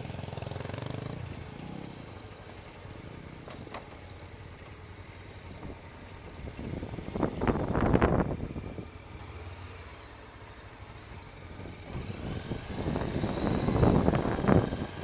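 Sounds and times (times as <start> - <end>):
motorcycle running: 0.0 - 15.0
wind rumble on microphone: 5.6 - 8.9, 11.5 - 15.0.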